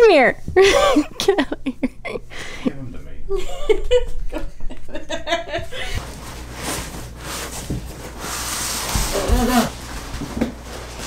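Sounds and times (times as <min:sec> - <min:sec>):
cardboard box scraping on floor: 0:06.0 - 0:11.0.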